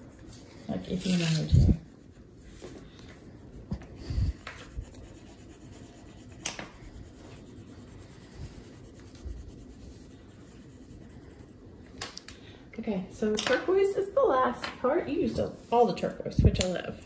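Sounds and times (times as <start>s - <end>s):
crayons scratching on paper: 0.0s - 2.7s, 4.0s - 11.6s.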